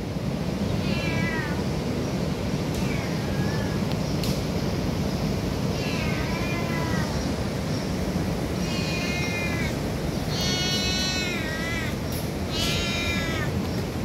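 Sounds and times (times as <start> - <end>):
cat meowing: 0.8 - 1.6, 2.8 - 3.8, 5.7 - 7.2, 8.6 - 13.6.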